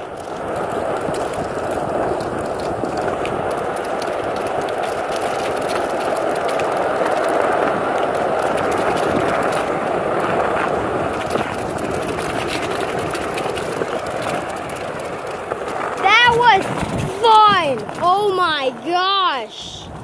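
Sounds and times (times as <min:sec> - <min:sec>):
skateboard wheels clicking over bumps: 0:00.0 - 0:20.0
skateboard wheels rumbling: 0:00.0 - 0:20.0.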